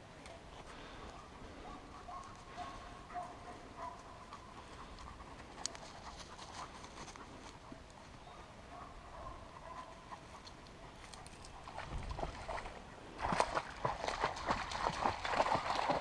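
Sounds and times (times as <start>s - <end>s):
dog panting and sniffing: 0.8s - 8.2s.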